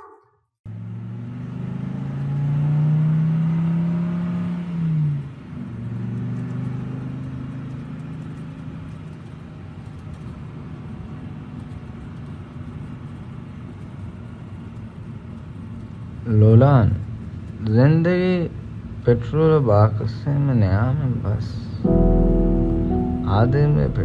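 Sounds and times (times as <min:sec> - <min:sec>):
vehicle engine accelerating: 0:00.7 - 0:09.4.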